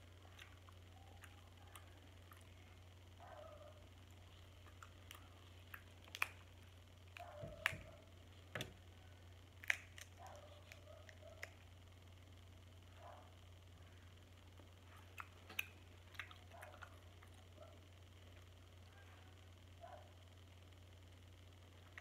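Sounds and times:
crab shell cracking: 4.0s - 11.9s.

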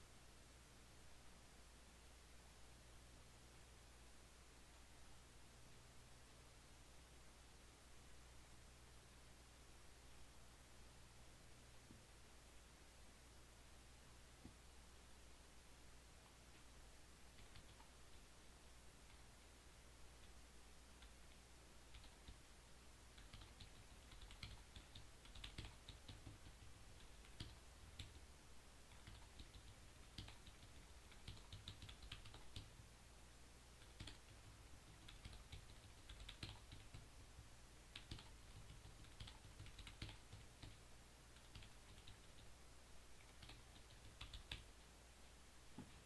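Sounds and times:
low electrical hum: 0.0s - 46.0s
typing on computer keyboard: 17.4s - 17.9s, 21.9s - 22.4s, 23.1s - 28.2s, 28.9s - 32.7s, 33.8s - 37.2s, 37.9s - 40.8s, 41.4s - 42.5s, 43.2s - 44.7s.

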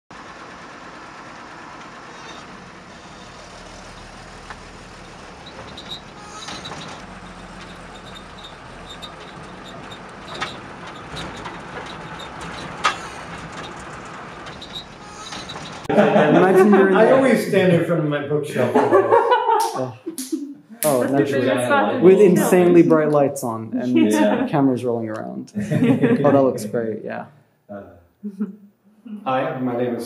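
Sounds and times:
distant traffic: 0.1s - 19.5s.

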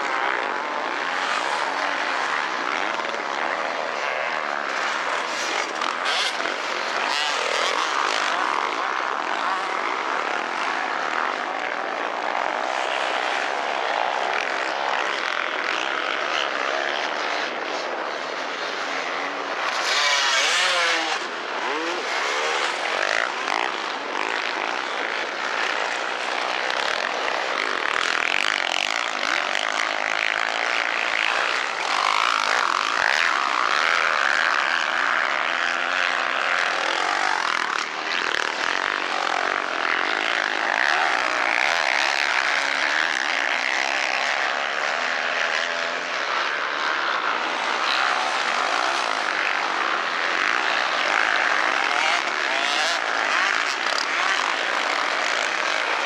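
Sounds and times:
motorcycle engines revving: 0.0s - 56.0s
motorcycle passing close: 0.0s - 56.0s.

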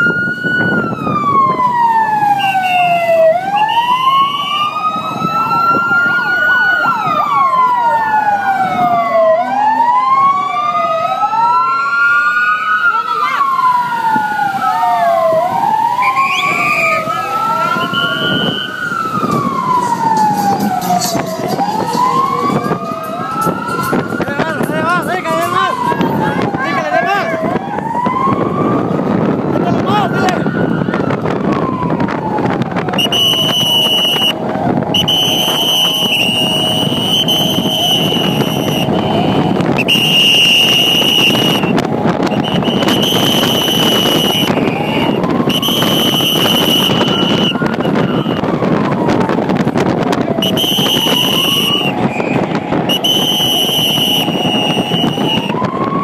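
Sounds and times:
low vehicle rumble: 0.0s - 56.0s
sirens wailing: 0.0s - 56.0s.

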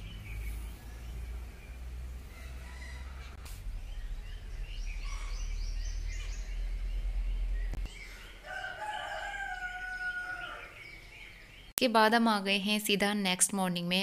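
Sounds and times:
birds chirping: 0.0s - 12.4s
low rumble: 3.4s - 7.9s.

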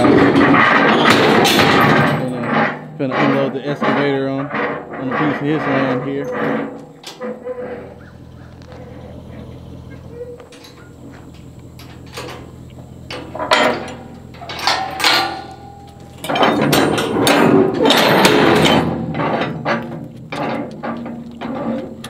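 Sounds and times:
heavy metal clanking and rattling: 0.0s - 22.0s
diesel engine idling: 5.3s - 22.0s.

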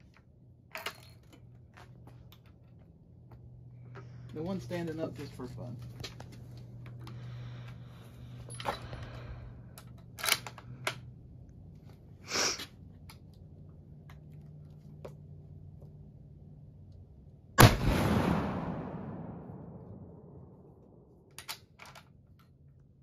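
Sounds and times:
loud gunshot with echo: 17.6s - 20.2s.

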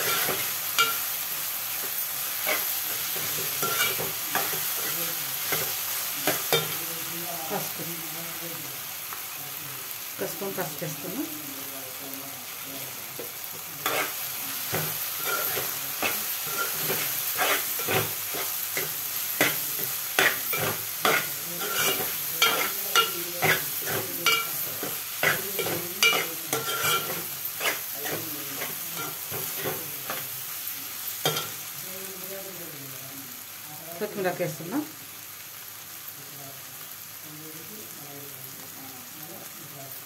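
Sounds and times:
oil sizzling in a pot: 0.0s - 40.0s
metal spoon scraping a pot: 20.2s - 29.7s.

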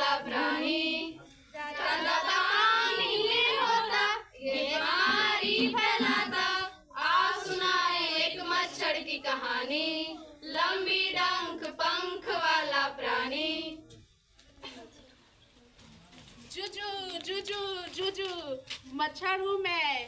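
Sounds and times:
girls singing together: 0.0s - 14.0s.

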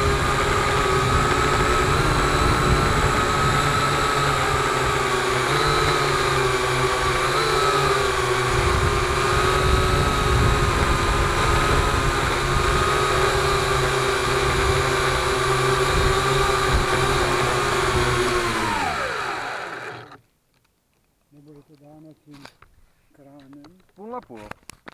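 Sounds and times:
drone propellers whining: 0.0s - 20.2s.

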